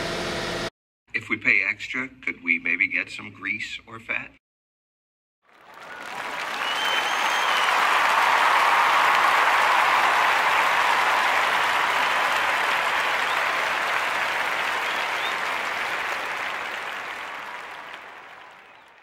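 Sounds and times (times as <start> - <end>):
crowd applause: 5.5 - 19.0.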